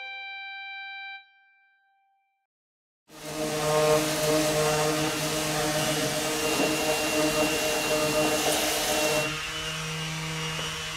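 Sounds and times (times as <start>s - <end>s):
motor-driven machine running: 3.2s - 9.8s.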